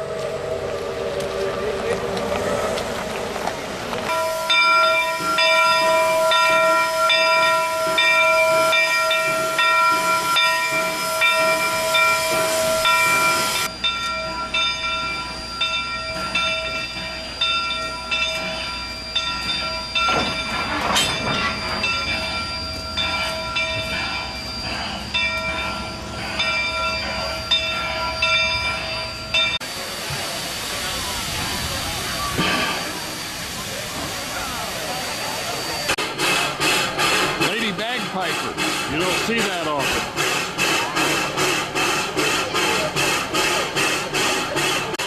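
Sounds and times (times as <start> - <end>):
steam hissing: 2.4 - 45.0
locomotive bell ringing: 4.0 - 29.7, 31.9 - 36.1.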